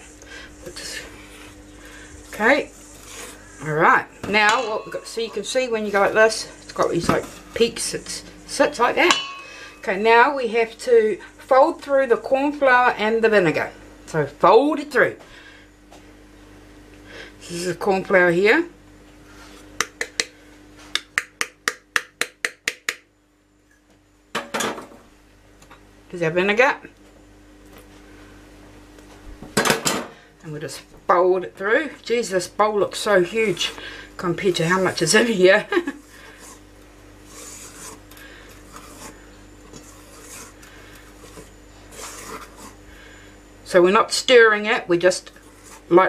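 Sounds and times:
faint steady hum: 0:00.0 - 0:46.0
spatula scraping steel bowl: 0:02.3 - 0:10.2, 0:33.0 - 0:43.0, 0:44.9 - 0:46.0.

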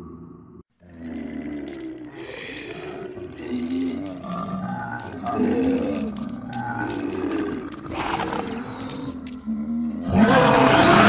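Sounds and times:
zombie growls and groans: 0:00.8 - 0:11.0.

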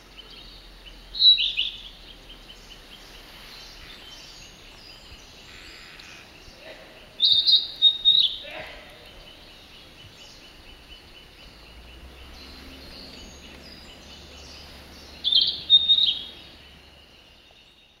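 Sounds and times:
bird singing high whistled notes: 0:00.5 - 0:02.5, 0:07.2 - 0:08.4, 0:10.4 - 0:18.0.

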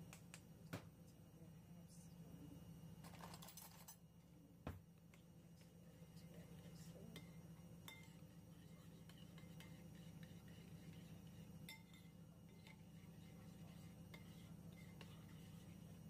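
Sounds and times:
low steady hum: 0:00.0 - 0:16.0
spoon clinking against bowl: 0:07.1 - 0:08.2, 0:11.6 - 0:12.8.

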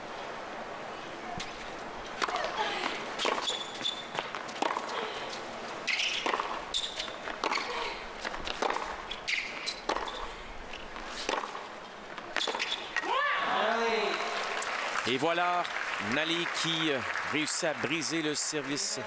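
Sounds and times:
racquets hitting tennis ball: 0:01.4 - 0:14.7
high squeaks: 0:03.2 - 0:04.1, 0:05.9 - 0:07.7
ball bouncing: 0:06.2 - 0:10.3.

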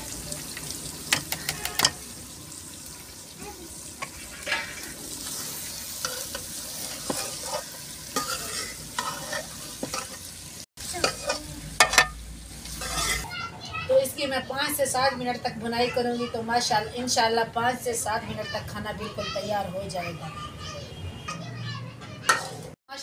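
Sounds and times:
food sizzling in a pan: 0:00.0 - 0:20.0, 0:21.6 - 0:22.8
metal spatula scraping a pan: 0:04.0 - 0:13.3, 0:21.2 - 0:22.8.

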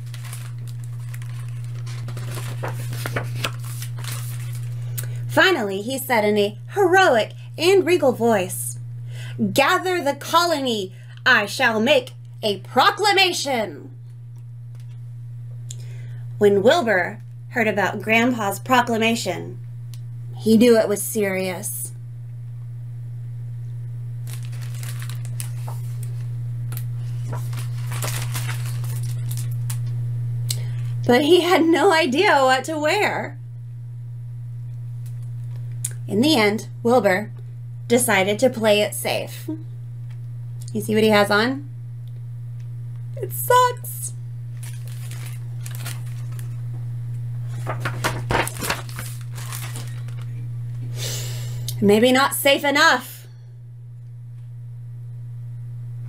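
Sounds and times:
paper pages rustling: 0:00.0 - 0:04.8, 0:24.3 - 0:26.3, 0:27.0 - 0:29.8, 0:44.6 - 0:46.6, 0:47.4 - 0:50.3
low hum: 0:00.0 - 0:56.0.

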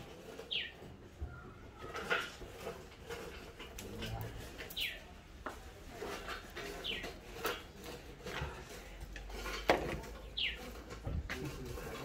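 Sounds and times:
light knocks and clatter: 0:05.4 - 0:12.0.

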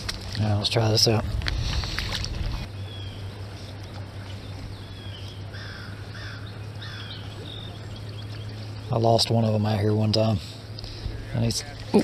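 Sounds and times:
steady low hum: 0:00.0 - 0:12.0
harsh bird calls: 0:04.5 - 0:09.1.

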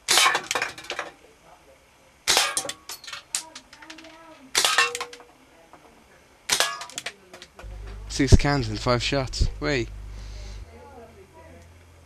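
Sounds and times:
metal can clinking: 0:02.4 - 0:05.3.

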